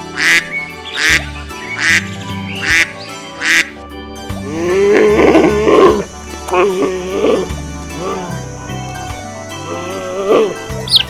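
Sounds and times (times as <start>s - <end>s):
ducks quacking: 0.0s - 3.8s
background music: 0.0s - 11.0s
low animal sound: 4.4s - 8.5s.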